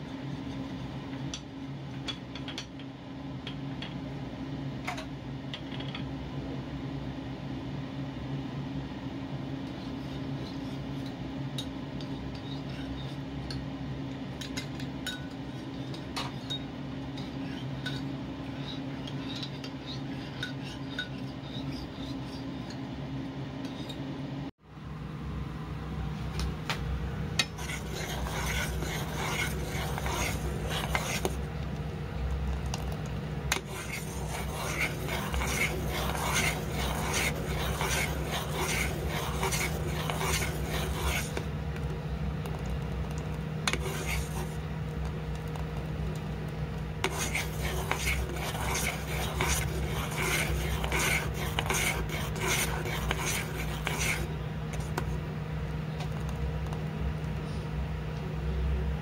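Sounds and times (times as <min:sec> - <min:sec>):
steady low hum: 0:00.0 - 0:59.0
spoon scraping a saucepan: 0:17.2 - 0:22.8, 0:27.4 - 0:31.4, 0:33.5 - 0:41.5, 0:43.7 - 0:44.6, 0:47.0 - 0:55.1.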